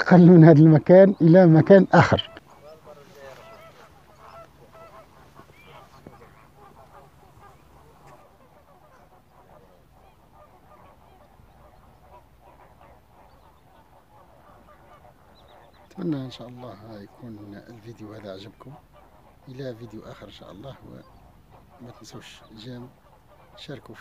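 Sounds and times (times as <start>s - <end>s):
distant flamingos honking: 0.0s - 24.0s.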